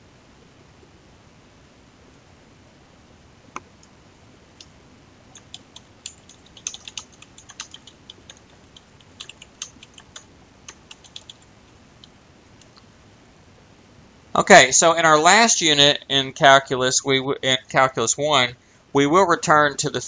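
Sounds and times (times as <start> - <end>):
computer keyboard typing: 5.3 - 12.1.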